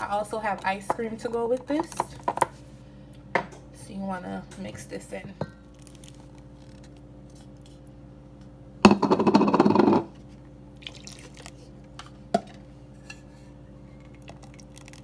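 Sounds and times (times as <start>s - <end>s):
steady low hum: 0.0s - 15.0s
milk pouring: 10.8s - 11.8s, 14.1s - 15.0s.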